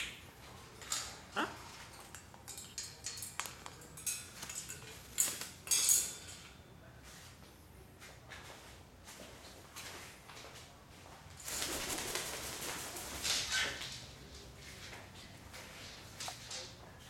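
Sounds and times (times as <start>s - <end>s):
wire birdcage clinking and rattling: 0.8s - 1.2s, 1.8s - 6.5s.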